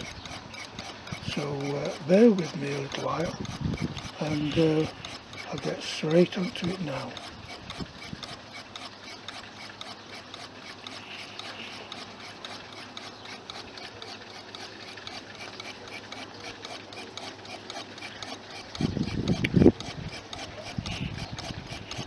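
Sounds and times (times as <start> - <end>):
electric motor ticking: 0.0 - 22.0.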